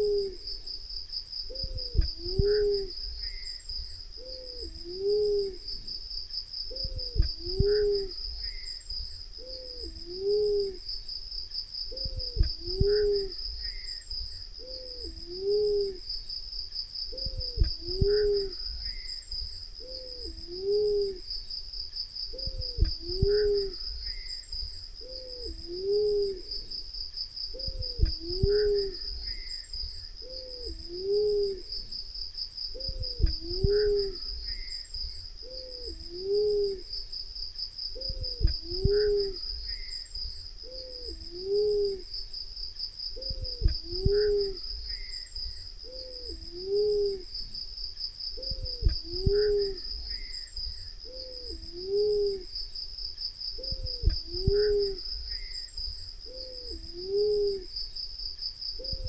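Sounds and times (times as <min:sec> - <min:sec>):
dove hooting: 0:00.0 - 0:00.6, 0:01.5 - 0:03.6, 0:04.2 - 0:06.0, 0:06.7 - 0:08.7, 0:09.4 - 0:10.9, 0:11.9 - 0:13.9, 0:14.6 - 0:16.1, 0:17.1 - 0:19.1, 0:19.8 - 0:21.3, 0:22.3 - 0:24.3, 0:25.0 - 0:26.8, 0:27.5 - 0:29.5, 0:30.2 - 0:31.8, 0:32.7 - 0:34.7, 0:35.4 - 0:36.9, 0:37.9 - 0:39.9, 0:40.6 - 0:42.1, 0:43.2 - 0:45.1, 0:45.8 - 0:47.3, 0:48.4 - 0:50.3, 0:51.0 - 0:52.5, 0:53.6 - 0:55.4, 0:56.2 - 0:57.7, 0:58.8 - 0:59.0
high insect trill: 0:00.0 - 0:59.0.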